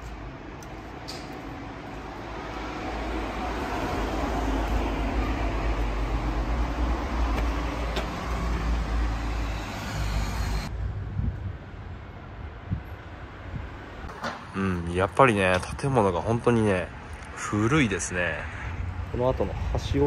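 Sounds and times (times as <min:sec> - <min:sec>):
heavy vehicle rumbling past: 0:01.3 - 0:12.1.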